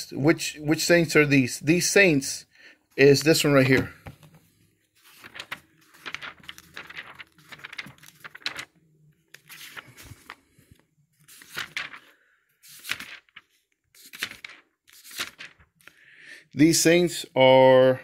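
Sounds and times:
thin pages turning: 3.1s - 16.0s.

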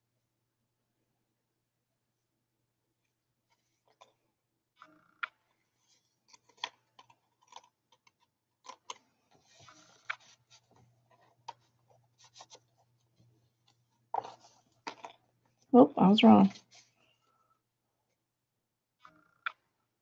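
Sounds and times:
paper rustling and sliding: 9.3s - 13.3s.

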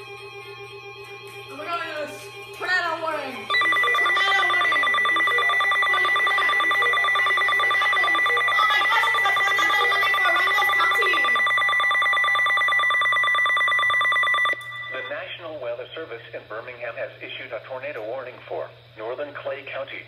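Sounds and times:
pulsing electronic alarm tone: 3.5s - 15.2s.

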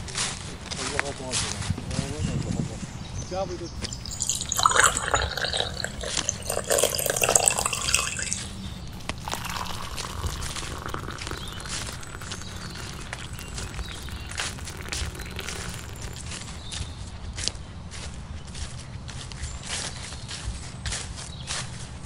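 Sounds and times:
water pouring into a mug: 3.8s - 16.9s.

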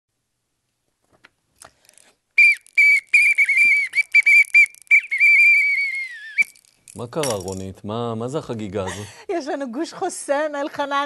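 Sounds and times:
plastic whistle toots: 2.4s - 6.7s.

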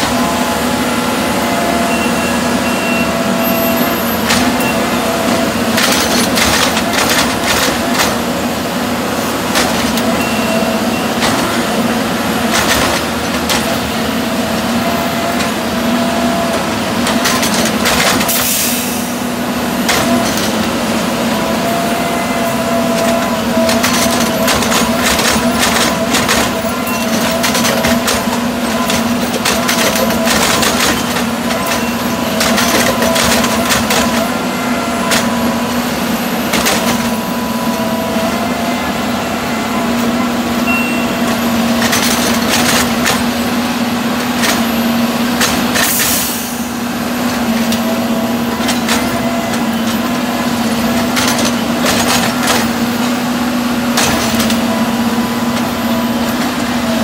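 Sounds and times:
diesel engine running: 0.0s - 57.0s
metallic clanks and knocks: 22.9s - 34.3s.

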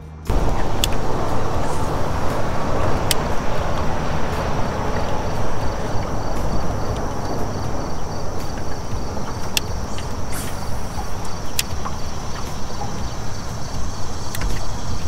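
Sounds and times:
rushing open-air noise: 0.0s - 15.0s
sharp clicks: 0.3s - 1.1s, 6.0s - 15.0s
insects trilling: 0.3s - 15.0s.

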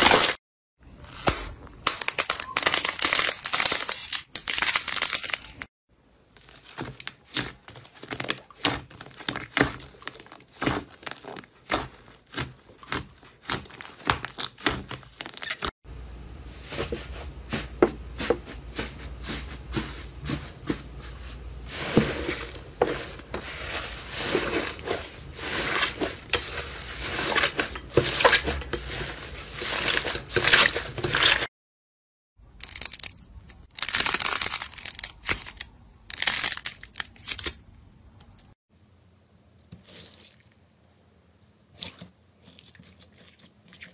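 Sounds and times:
slime crackling and squelching: 6.3s - 15.7s, 16.7s - 31.5s.

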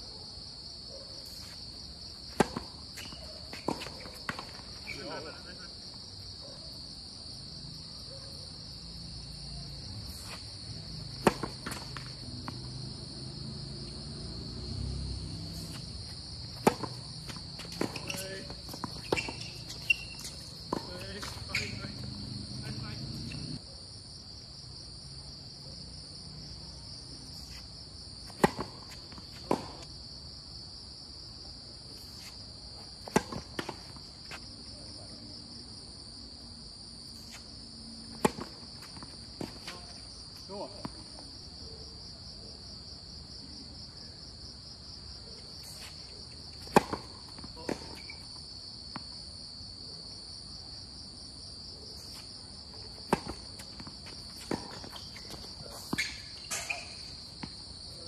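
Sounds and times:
high-pitched insect chorus: 0.1s - 58.0s
tennis ball hits and bounces: 2.3s - 5.2s, 10.1s - 14.0s, 14.6s - 23.6s, 28.2s - 29.9s, 33.0s - 34.4s, 38.1s - 40.1s, 45.6s - 49.2s, 52.8s - 57.7s.

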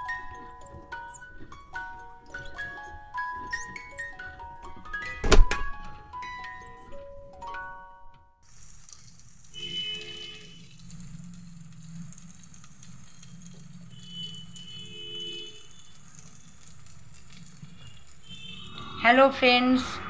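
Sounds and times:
curry sizzling in a pan: 8.4s - 14.7s, 15.6s - 18.7s.

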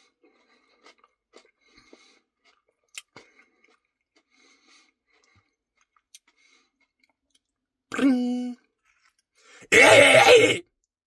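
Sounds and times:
close wet chewing: 0.0s - 7.7s, 8.6s - 9.5s
mouth clicks and smacks: 0.3s - 8.0s.

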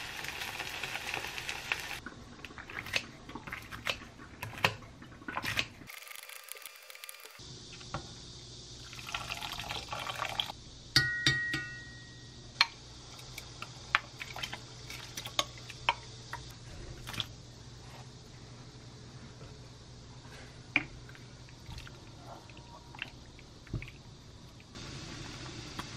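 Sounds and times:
clink on glass bowl: 11.0s - 12.4s.

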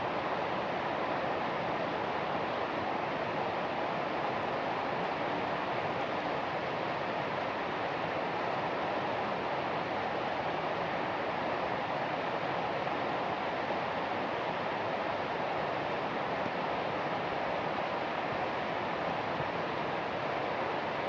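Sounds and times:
steady rain hiss: 0.0s - 21.0s.

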